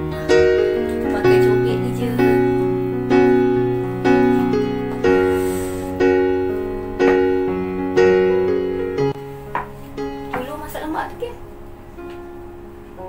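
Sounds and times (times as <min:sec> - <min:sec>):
piano chords: 0:00.0 - 0:13.0.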